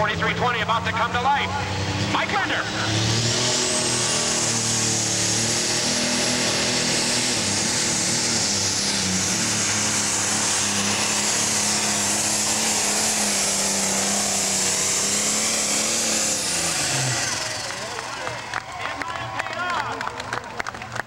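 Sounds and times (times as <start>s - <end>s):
diesel tractor engine under load: 0.0s - 21.0s.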